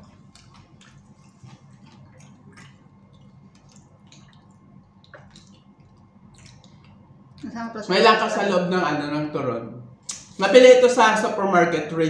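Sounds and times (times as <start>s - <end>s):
people chewing crunchy food: 0.0s - 7.5s
low room hum: 0.0s - 12.0s.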